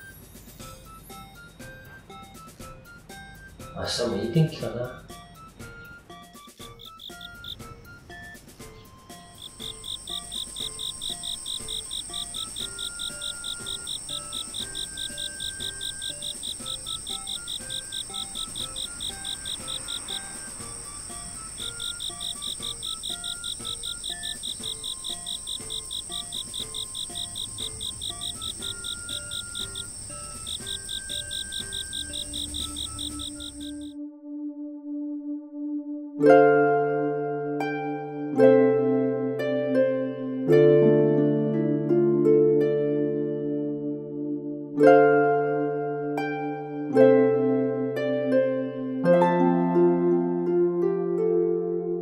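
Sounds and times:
soft music notes: 0.0 - 34.2, 36.2 - 52.0
crickets chirping: 6.6 - 33.9.

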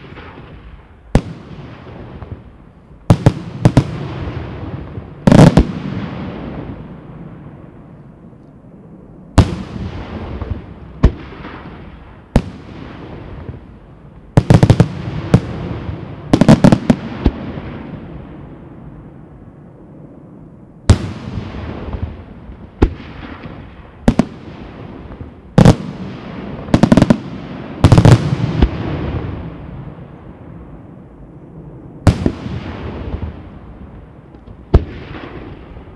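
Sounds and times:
fireworks shells booming: 0.0 - 7.1, 9.4 - 13.7, 14.3 - 18.4, 20.9 - 29.9.

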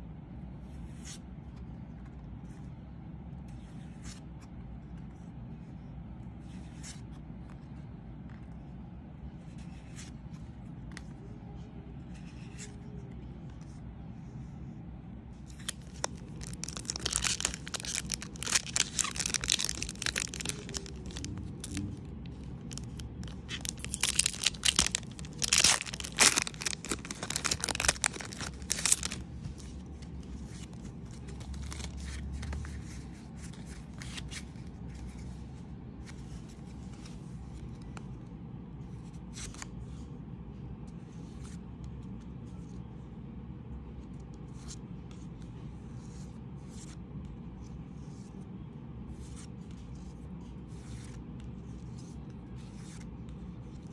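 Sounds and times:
wrapper tearing and crinkling: 15.5 - 29.7, 30.6 - 32.0.

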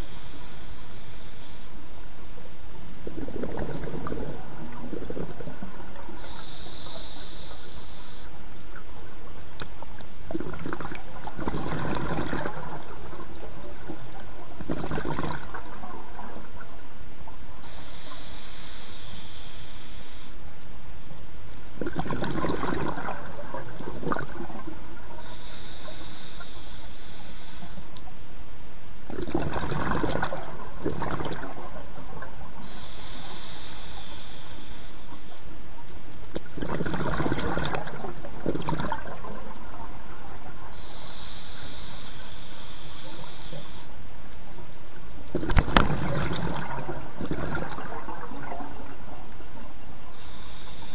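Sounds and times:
diver's exhaled bubbles: 3.0 - 6.3, 10.3 - 14.0, 14.6 - 15.9, 21.8 - 24.7, 29.1 - 31.7, 36.3 - 39.5, 45.3 - 49.2
hissing in-breath through regulator: 4.9 - 8.4, 17.6 - 20.4, 24.2 - 27.9, 32.6 - 35.4, 40.6 - 44.0, 50.1 - 50.9.

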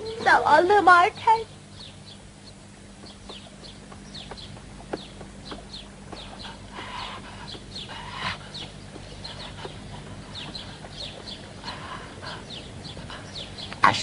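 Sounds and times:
cartoon birds chirping: 0.0 - 14.0
rough bird calls: 1.4 - 14.0.

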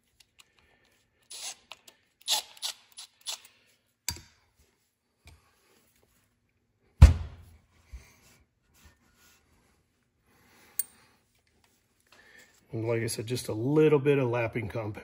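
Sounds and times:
loud deep thump: 7.0 - 7.4.

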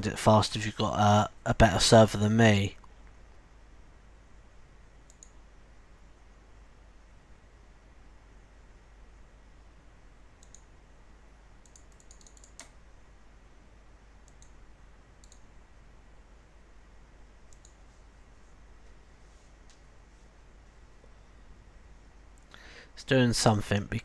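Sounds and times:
low background hiss: 0.0 - 24.0
computer mouse clicks: 5.0 - 5.4, 10.4 - 10.7, 11.6 - 12.8, 14.2 - 14.6, 15.2 - 15.5, 17.5 - 17.8.

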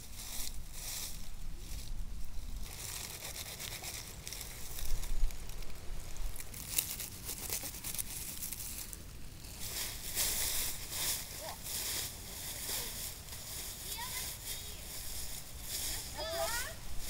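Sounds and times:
crinkling and rustling: 1.8 - 17.0.

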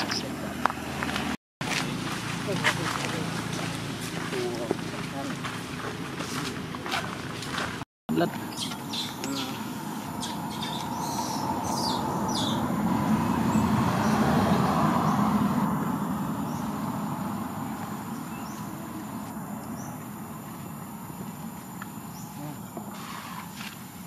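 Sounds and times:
vehicle passing by: 0.0 - 7.8, 9.3 - 23.7.

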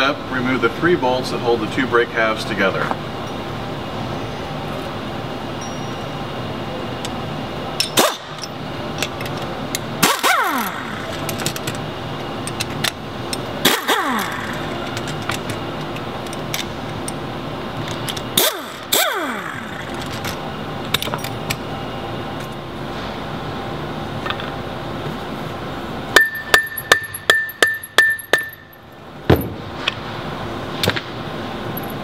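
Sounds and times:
steady background noise: 0.0 - 32.0
power driver whining: 7.8 - 17.2, 17.8 - 21.6.

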